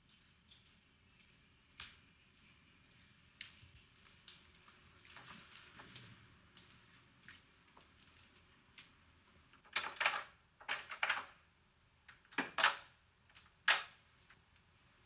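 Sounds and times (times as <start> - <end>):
door chain and lock rattling: 9.6 - 11.4, 12.1 - 14.0.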